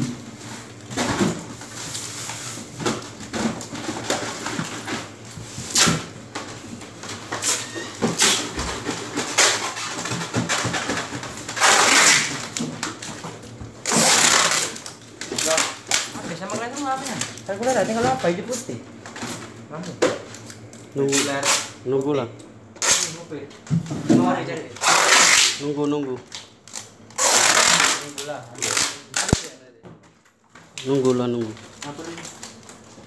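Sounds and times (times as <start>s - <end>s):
plastic scraping on styrofoam: 7.2s - 12.6s, 13.8s - 18.2s, 24.8s - 25.6s, 27.2s - 29.4s.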